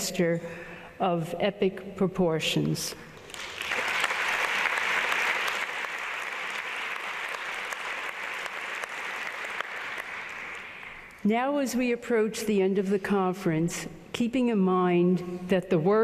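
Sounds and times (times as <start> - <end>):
audience applauding: 3.2 - 11.2.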